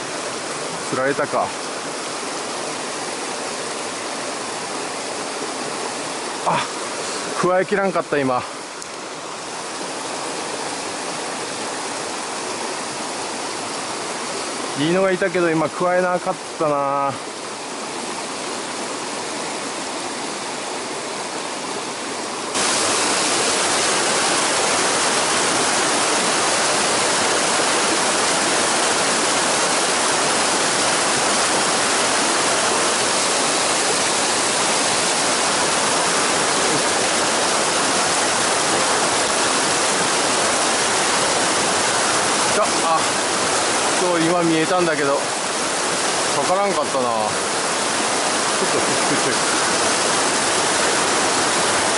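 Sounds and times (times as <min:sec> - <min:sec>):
stream water rushing over rocks: 0:00.0 - 0:51.9.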